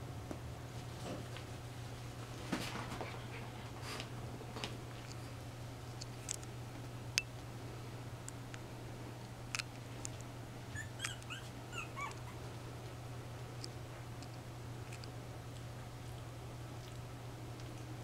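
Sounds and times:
steady low hum: 0:00.0 - 0:18.0
puppies whimpering: 0:10.7 - 0:12.5.

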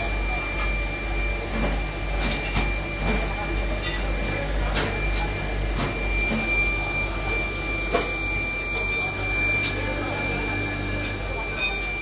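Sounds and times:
workshop machinery hum: 0:00.0 - 0:12.0
high-pitched whine: 0:06.3 - 0:12.0.

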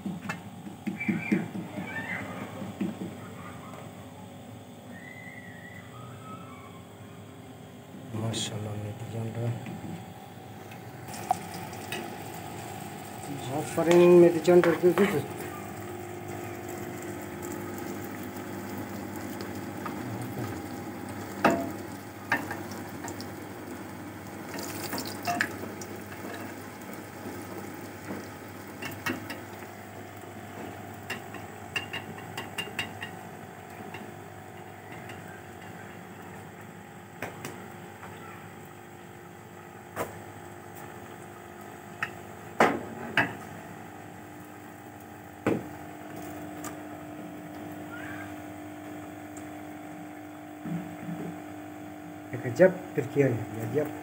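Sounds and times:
food sizzling in hot oil: 0:11.0 - 0:35.2.

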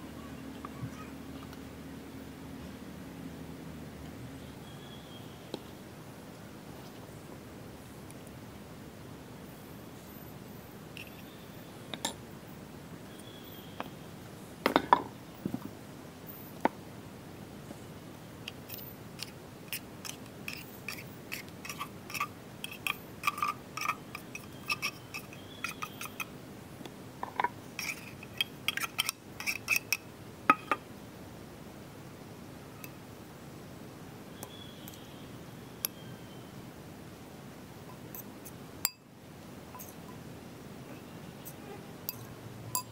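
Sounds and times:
metal spoon scraping tin: 0:18.7 - 0:26.3, 0:27.4 - 0:30.0
spoon tapping glass bowl: 0:30.5 - 0:30.8, 0:38.8 - 0:39.0, 0:42.1 - 0:42.9.

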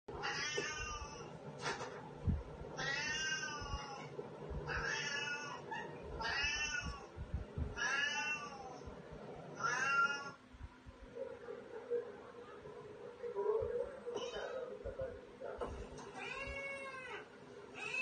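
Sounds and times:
cat meowing: 0:00.2 - 0:01.3, 0:02.8 - 0:04.1, 0:04.7 - 0:07.1, 0:07.8 - 0:08.8, 0:09.6 - 0:10.4, 0:16.2 - 0:18.0.

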